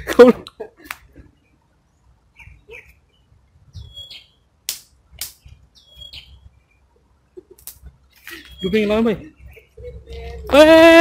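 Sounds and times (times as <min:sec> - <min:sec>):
bird calling: 0:02.3 - 0:04.5, 0:05.7 - 0:10.7.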